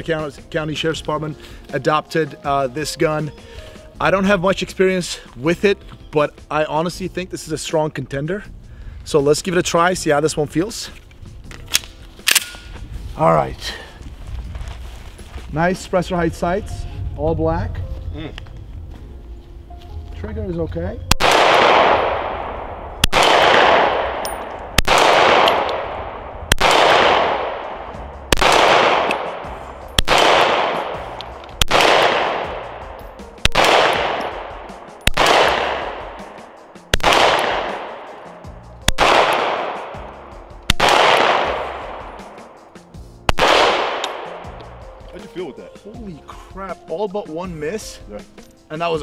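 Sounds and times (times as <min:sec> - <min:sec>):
pistol shots with echo: 0:21.1 - 0:38.2, 0:38.9 - 0:40.0, 0:40.7 - 0:42.4, 0:43.3 - 0:44.6.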